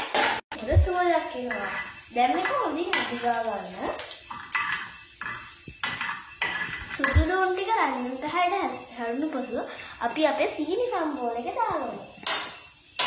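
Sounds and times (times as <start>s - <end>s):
onions sizzling in oil: 0.0s - 13.0s
spoon scraping frying pan: 0.0s - 13.0s
person speaking: 7.0s - 7.6s.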